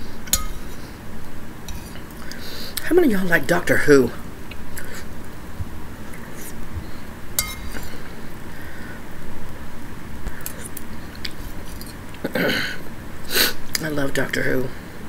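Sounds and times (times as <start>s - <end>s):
metal spoon clinking on bowl: 0.3s - 0.7s, 7.4s - 7.9s.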